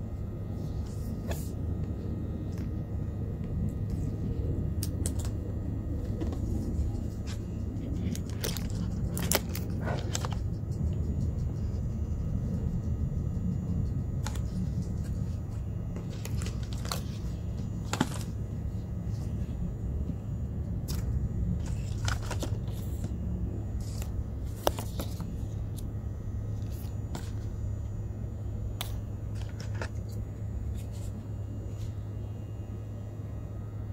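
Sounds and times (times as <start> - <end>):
steady low hum: 0.0 - 33.9
box and packaging handled: 6.0 - 10.5, 14.2 - 19.6, 20.8 - 25.9, 26.5 - 27.7, 28.8 - 31.2.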